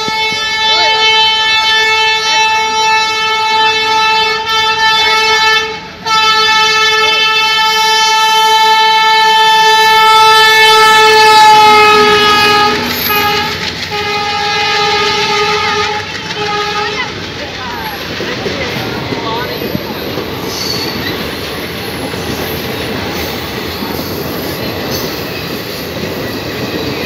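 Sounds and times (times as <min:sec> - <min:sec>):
train horn blast: 0:00.0 - 0:17.1
train coaches rumbling past: 0:00.0 - 0:27.0.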